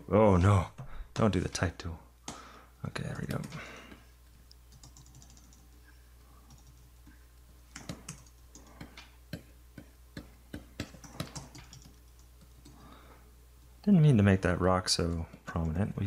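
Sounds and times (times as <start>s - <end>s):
faint low hum: 0.0s - 16.0s
keyboard keys clicking: 4.7s - 5.7s, 7.7s - 8.8s, 10.8s - 12.8s.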